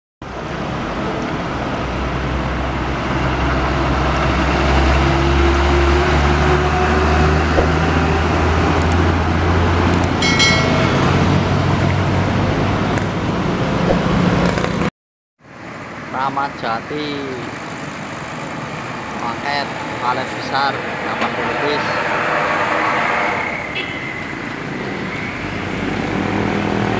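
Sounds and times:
traffic noise: 0.2s - 26.9s
truck diesel engine passing: 0.3s - 14.9s, 15.5s - 26.9s
short high-pitched tone: 10.2s - 11.7s.

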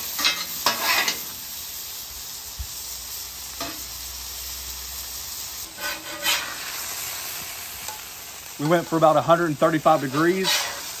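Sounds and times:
metal spatula scraping griddle: 0.0s - 1.4s, 5.6s - 7.1s, 9.7s - 11.0s
food sizzling on a griddle: 0.0s - 11.0s.

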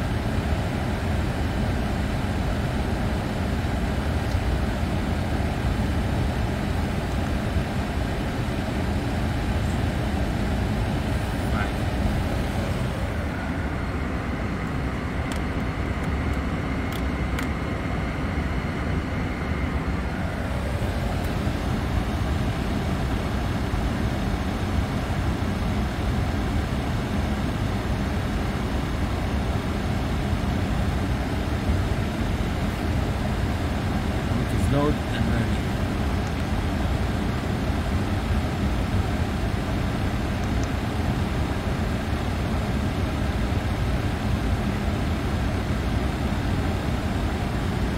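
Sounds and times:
aircraft cockpit background noise: 0.0s - 47.9s.

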